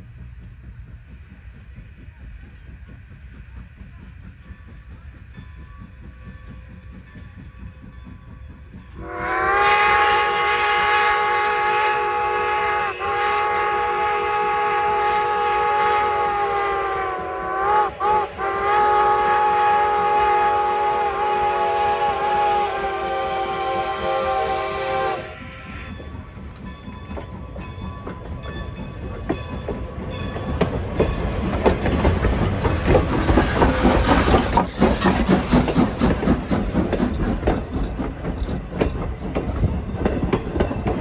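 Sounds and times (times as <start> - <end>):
steam locomotive whistle: 9.0 - 26.1.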